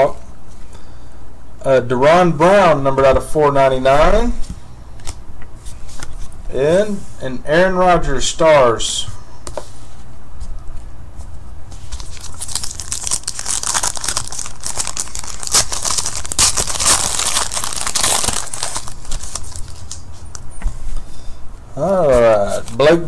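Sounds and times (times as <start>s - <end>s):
foil wrapper tearing and crinkling: 11.9s - 20.3s.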